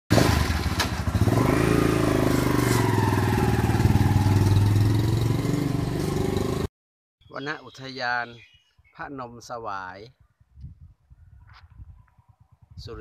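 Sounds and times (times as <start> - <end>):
motorcycle engine pulling away: 0.1 - 6.7.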